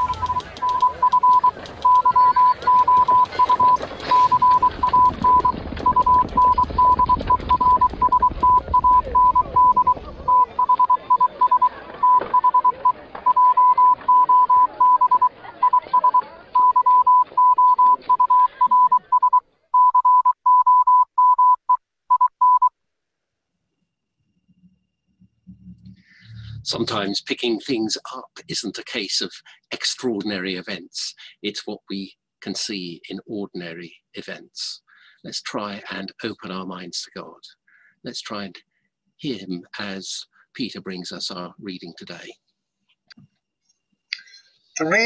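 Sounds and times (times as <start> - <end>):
morse code beeps: 0.0 - 22.7
low rumble: 25.1 - 27.0.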